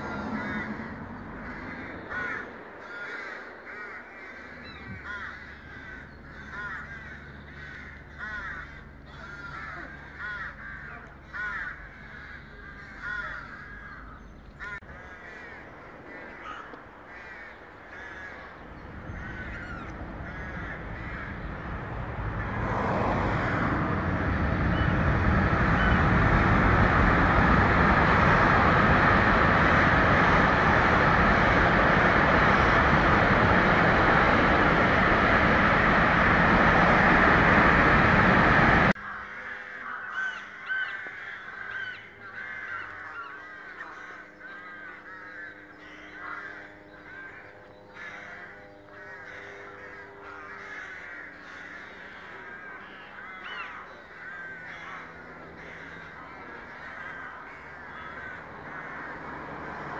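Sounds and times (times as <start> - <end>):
loud steady rushing noise: 0.0 - 8.1, 15.6 - 39.0, 49.0 - 59.9
rooks cawing: 0.0 - 59.9.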